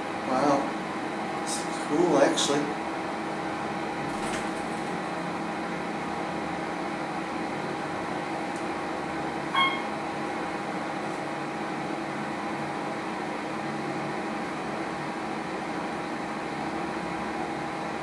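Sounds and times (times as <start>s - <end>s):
elevator drive humming: 0.0s - 18.0s
short high beep: 9.6s - 9.9s.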